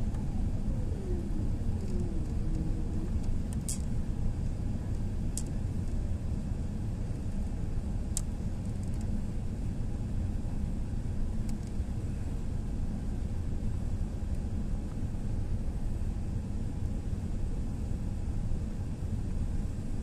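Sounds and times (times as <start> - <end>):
jet engines and airflow rumble: 0.0 - 20.0.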